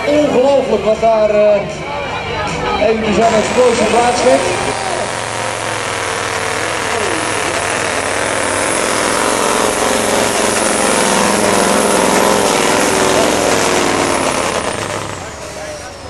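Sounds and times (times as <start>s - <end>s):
diesel truck engine under load: 3.0s - 16.0s.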